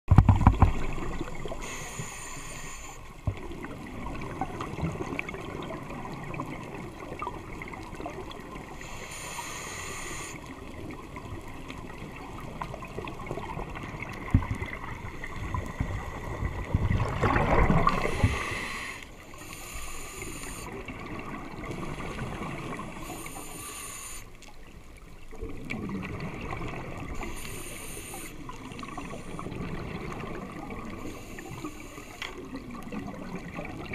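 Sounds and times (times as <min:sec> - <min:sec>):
bubbles gurgling underwater: 0:00.1 - 0:01.6, 0:03.3 - 0:08.7, 0:10.5 - 0:18.6, 0:25.2 - 0:27.3, 0:28.4 - 0:31.1, 0:32.4 - 0:33.9
diver breathing on regulator: 0:01.5 - 0:03.1, 0:08.8 - 0:10.5, 0:17.8 - 0:20.8, 0:22.9 - 0:24.4, 0:27.2 - 0:28.4, 0:30.8 - 0:32.6.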